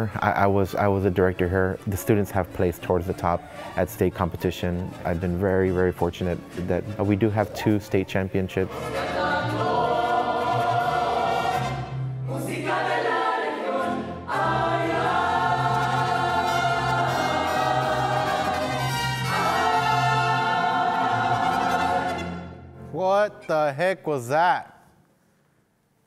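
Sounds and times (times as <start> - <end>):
group of voices singing: 8.5 - 22.6.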